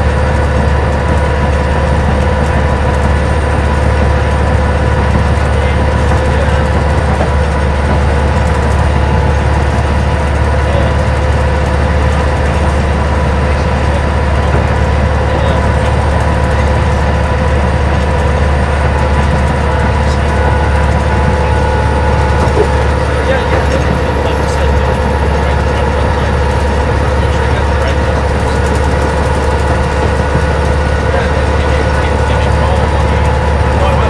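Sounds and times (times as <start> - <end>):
diesel engine hum and whine: 0.0 - 34.0.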